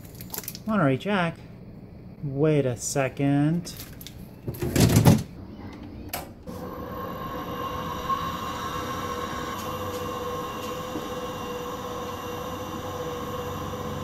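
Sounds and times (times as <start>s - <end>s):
drill press motor humming: 6.5s - 14.0s.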